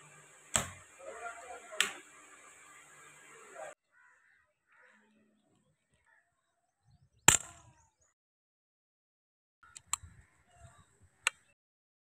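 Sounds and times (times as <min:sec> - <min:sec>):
air rifle lever click: 0:09.7 - 0:10.1.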